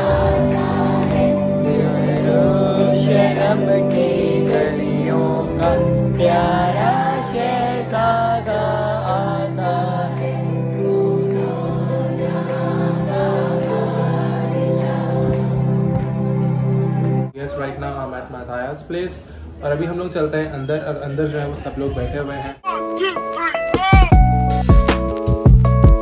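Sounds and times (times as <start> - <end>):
children's choir singing a hymn: 0.0 - 17.2.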